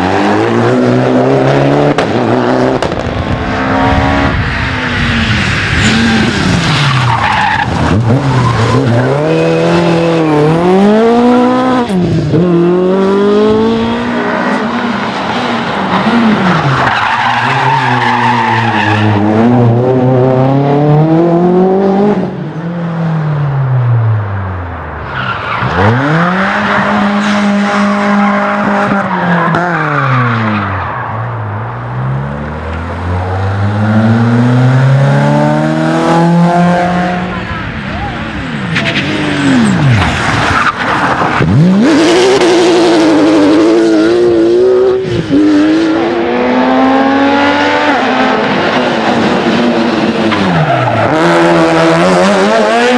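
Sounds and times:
tyres skidding: 0:00.0 - 0:20.4, 0:24.5 - 0:52.9
rally car engines at full throttle: 0:00.0 - 0:52.9.

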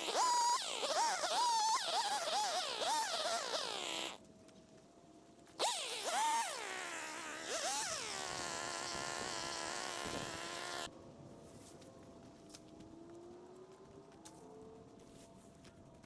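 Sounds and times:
small gas engine revving: 0:00.0 - 0:04.2, 0:05.6 - 0:10.9.

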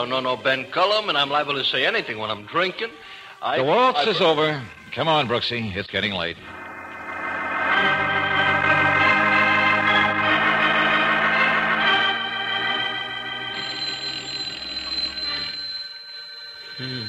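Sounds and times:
organ chords: 0:00.0 - 0:15.8
telephone bell ringing: 0:11.8 - 0:17.0.

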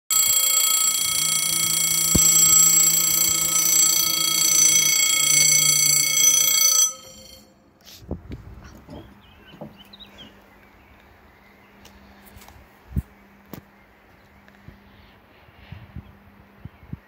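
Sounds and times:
level crossing warning bell: 0:00.0 - 0:07.7.

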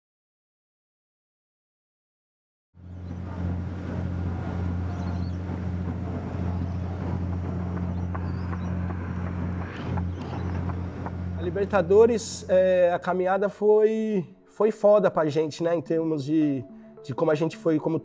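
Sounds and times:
boat engine drone: 0:02.8 - 0:13.2.

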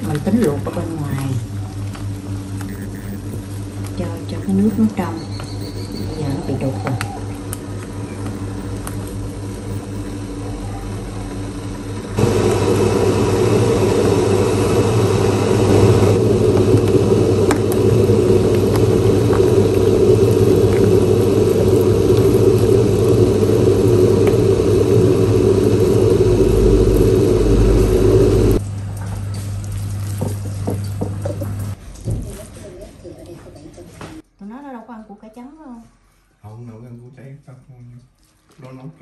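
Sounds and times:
low hum: 0:00.0 - 0:32.4
loud mechanical whir: 0:02.3 - 0:28.6.

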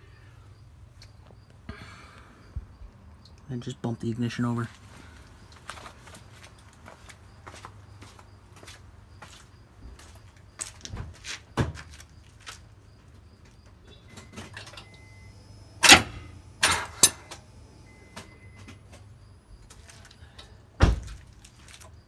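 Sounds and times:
loud clunks of engine kicking bar: 0:15.8 - 0:17.4.

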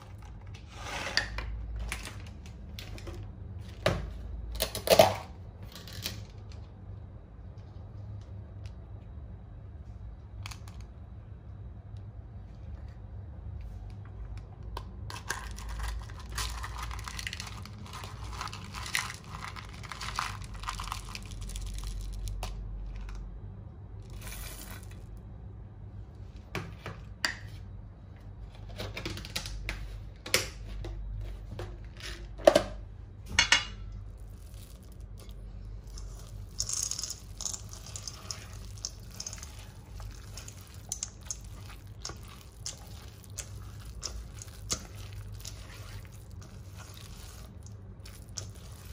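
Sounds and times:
rustling and crinkling: 0:15.1 - 0:23.2, 0:34.0 - 0:48.9.

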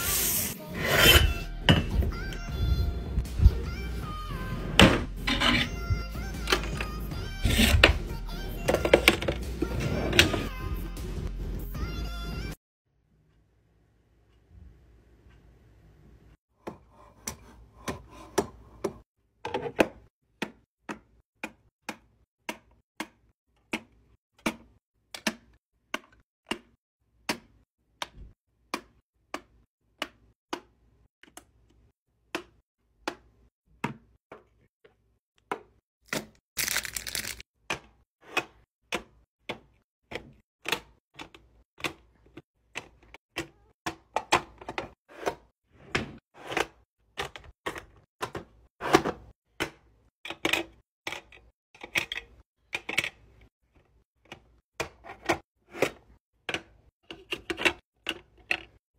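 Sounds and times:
packaging rustling: 0:36.6 - 0:37.4.

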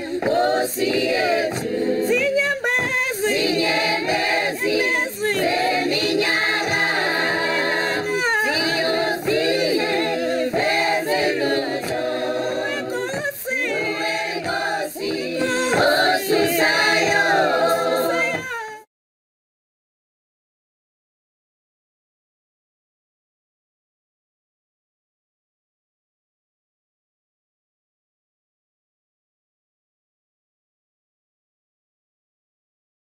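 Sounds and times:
choir singing: 0:00.0 - 0:18.5.

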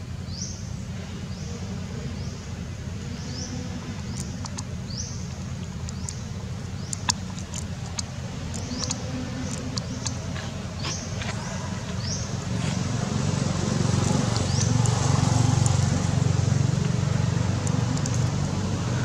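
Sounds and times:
light ticks: 0:05.3 - 0:12.1, 0:16.7 - 0:18.7.

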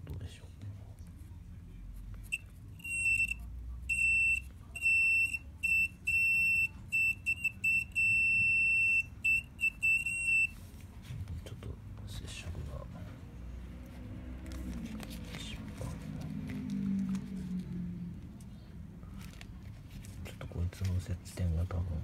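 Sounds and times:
multimeter continuity buzzer beeping: 0:02.8 - 0:10.5.

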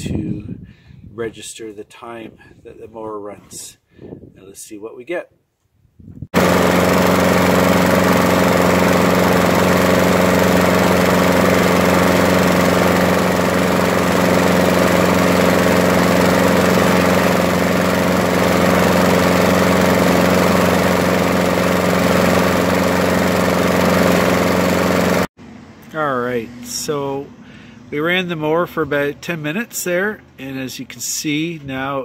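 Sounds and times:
lawn mower engine running: 0:06.4 - 0:25.3.

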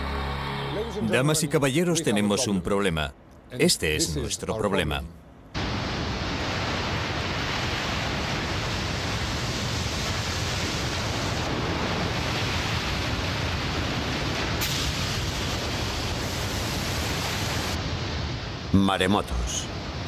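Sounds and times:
rushing seawater roar: 0:05.6 - 0:20.0.

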